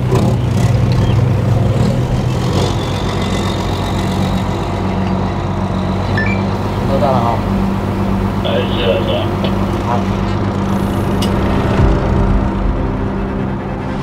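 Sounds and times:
ship engine droning: 0:00.0 - 0:14.0
faint high whine: 0:06.1 - 0:11.5.

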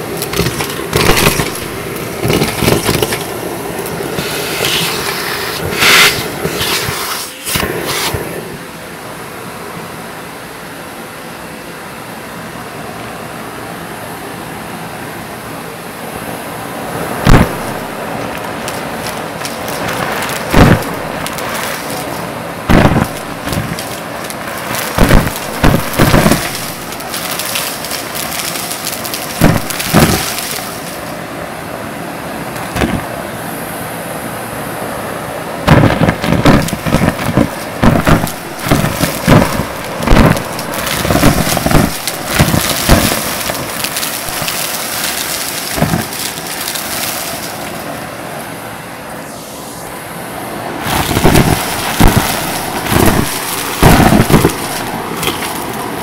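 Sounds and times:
debris clattering in vacuum: 0:00.2 - 0:08.4, 0:17.3 - 0:31.1, 0:35.7 - 0:47.9, 0:50.8 - 0:56.0
vacuum cleaner running: 0:04.1 - 0:08.7.

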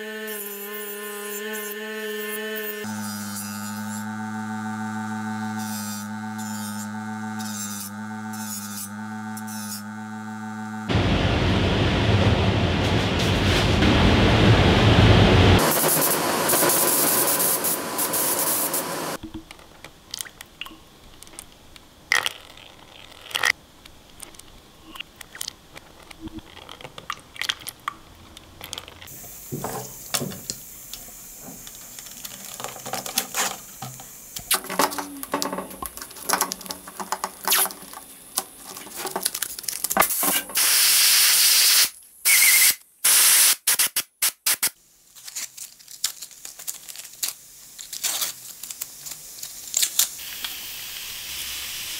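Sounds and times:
paint spray gun hissing: 0:15.6 - 0:19.2, 0:29.1 - 0:39.0, 0:40.0 - 0:44.8, 0:49.6 - 0:51.9
masking tape clicks and crinkles: 0:19.2 - 0:29.1, 0:30.9 - 0:40.5, 0:43.7 - 0:50.6.

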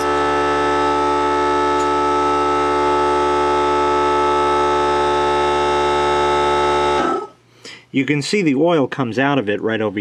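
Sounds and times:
air compressor motor whining: 0:00.0 - 0:07.4.

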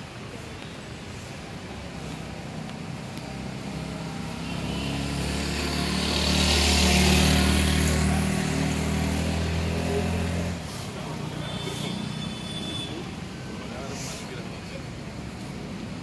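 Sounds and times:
vehicle engine passing by: 0:03.3 - 0:11.3.

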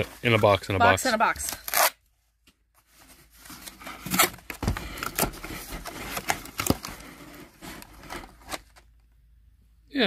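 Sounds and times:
cardboard flaps scraping and rustling: 0:02.8 - 0:08.8.

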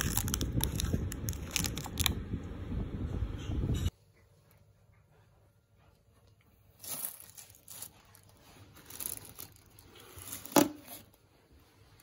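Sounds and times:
plastic bag crinkling: 0:00.0 - 0:02.2, 0:06.7 - 0:11.2.

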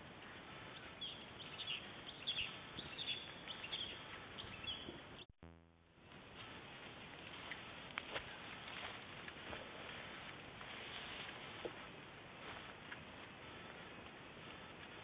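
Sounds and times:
steady outdoor hiss: 0:00.0 - 0:05.2, 0:05.9 - 0:15.0
birds chirping and twittering: 0:00.7 - 0:05.3.

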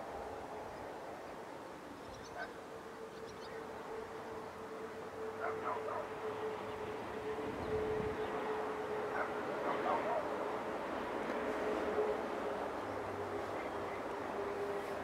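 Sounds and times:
dog barking: 0:05.4 - 0:06.1, 0:09.1 - 0:10.3.

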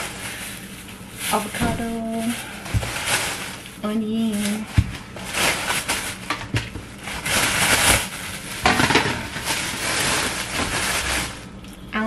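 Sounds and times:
plastic bag rustling: 0:00.0 - 0:11.9.

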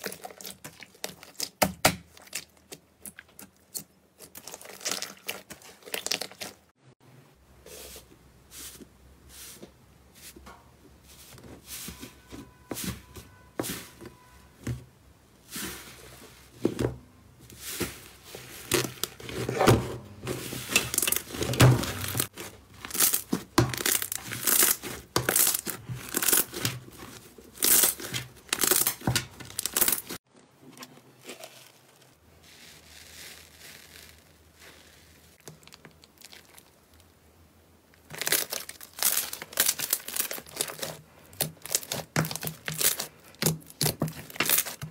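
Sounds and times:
slime crackling and popping: 0:22.1 - 0:26.8, 0:32.6 - 0:37.1, 0:38.0 - 0:44.9.

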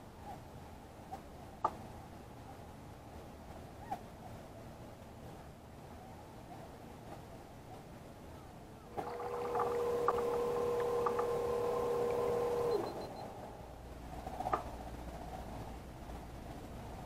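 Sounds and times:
electric motor whining: 0:09.0 - 0:13.1.

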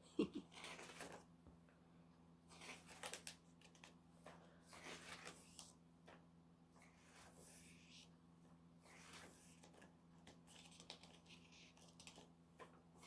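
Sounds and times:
pages turning: 0:00.5 - 0:01.2, 0:02.5 - 0:06.2, 0:08.8 - 0:13.0.

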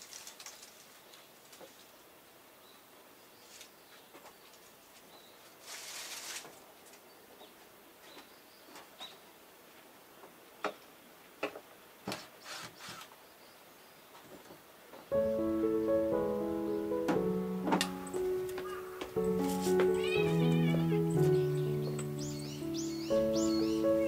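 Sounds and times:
brief rustle: 0:00.0 - 0:02.0, 0:04.4 - 0:07.0, 0:12.1 - 0:13.1, 0:19.3 - 0:20.2
faint bird chirps: 0:18.1 - 0:24.0.

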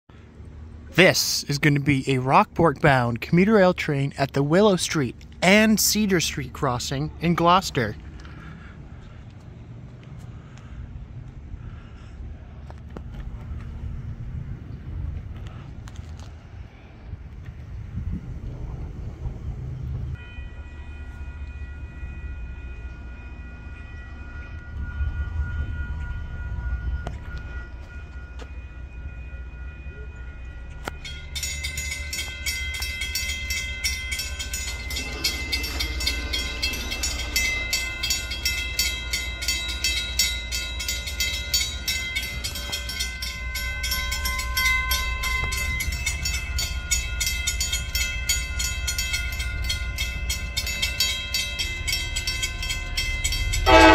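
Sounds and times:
railroad crossing bell ringing: 0:00.1 - 0:12.8, 0:19.5 - 0:53.9
low rumble: 0:08.0 - 0:20.2.

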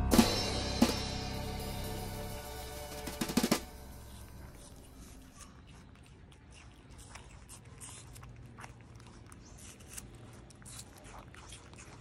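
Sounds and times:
low steady hum: 0:00.0 - 0:07.0
mouths chewing wet smacks: 0:04.2 - 0:12.0.

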